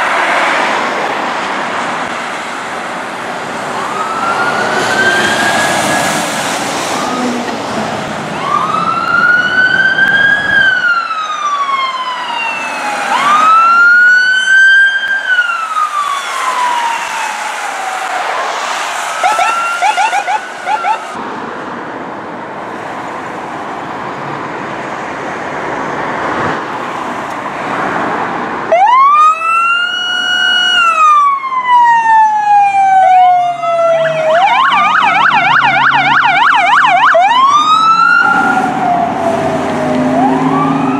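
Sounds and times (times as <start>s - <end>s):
emergency siren wailing: 3.1s - 21.2s, 28.7s - 40.9s
siren fast warbling: 3.8s - 7.4s, 8.3s - 21.2s, 28.7s - 40.9s
siren fast yelp: 8.4s - 21.2s, 28.7s - 39.3s.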